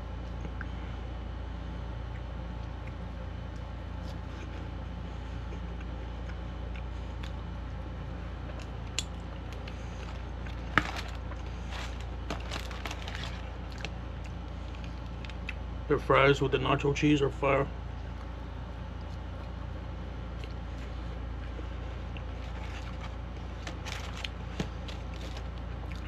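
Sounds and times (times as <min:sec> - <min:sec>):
low hum: 0:00.0 - 0:26.0
close-up chewing: 0:02.0 - 0:15.7, 0:18.9 - 0:26.0.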